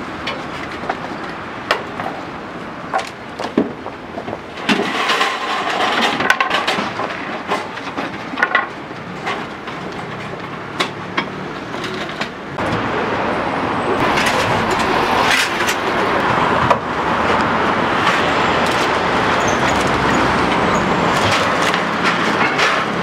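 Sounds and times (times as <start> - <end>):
road traffic: 0.0 - 23.0
wooden boards and metal clatter: 0.2 - 12.9, 14.0 - 23.0.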